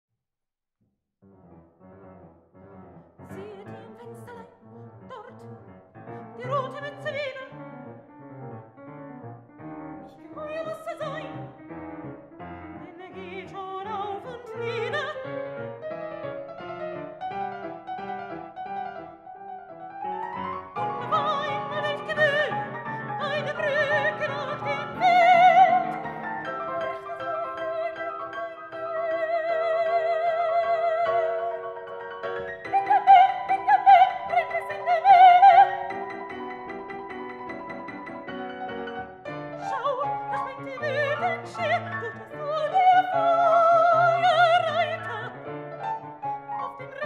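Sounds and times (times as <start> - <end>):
grand piano accompaniment: 1.2 - 47.0
soprano singing with vibrato: 3.3 - 5.5, 6.4 - 7.6, 10.1 - 11.6, 12.8 - 15.4, 20.8 - 31.9, 32.6 - 36.2, 39.6 - 45.4, 46.6 - 47.0.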